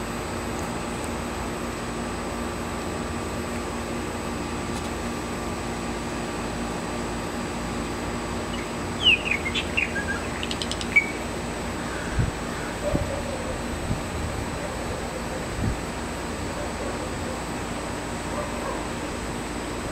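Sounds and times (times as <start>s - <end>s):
steady background hum: 0.0s - 19.9s
bird chirping and gurgling: 8.5s - 13.5s.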